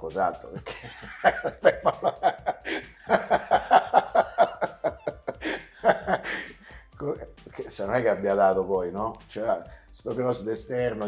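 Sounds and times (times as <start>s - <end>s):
men laughing: 0.5s - 7.3s.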